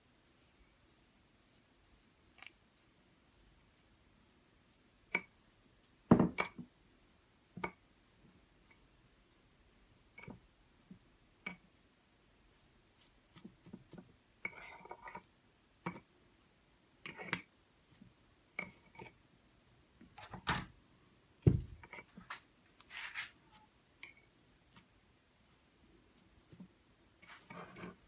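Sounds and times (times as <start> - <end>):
dull thump: 21.4 - 21.8.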